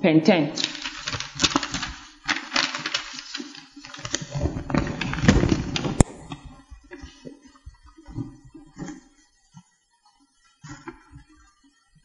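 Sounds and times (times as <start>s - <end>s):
rustling and knocking: 0.6s - 9.0s.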